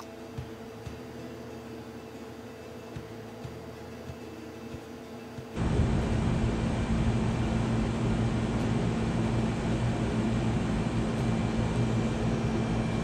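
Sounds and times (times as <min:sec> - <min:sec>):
machine humming: 0:05.6 - 0:13.0.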